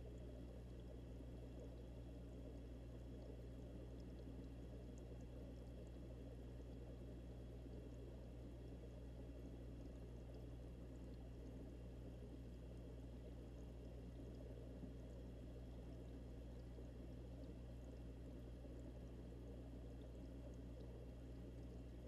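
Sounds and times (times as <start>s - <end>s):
muffled underwater bubbling: 0.0s - 22.0s.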